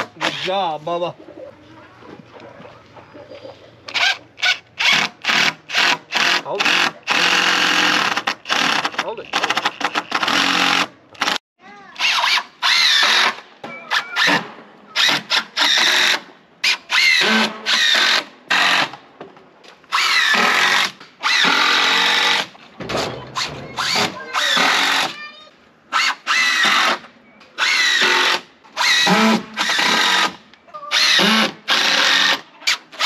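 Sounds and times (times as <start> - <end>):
cordless drill driving screws into wood: 3.9 - 11.4, 12.0 - 14.4, 15.0 - 19.0, 19.9 - 22.5, 23.4 - 25.1, 25.9 - 33.0.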